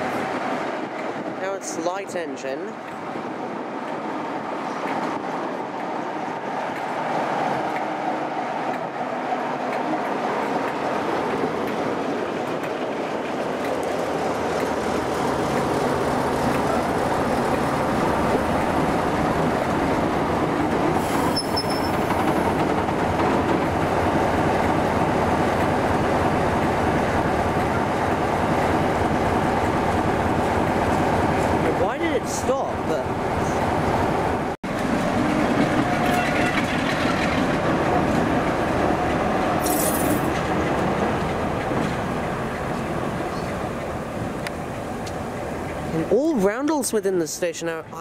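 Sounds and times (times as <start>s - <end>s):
diesel locomotive approaching: 0.0s - 48.0s
high squeal: 21.1s - 22.0s.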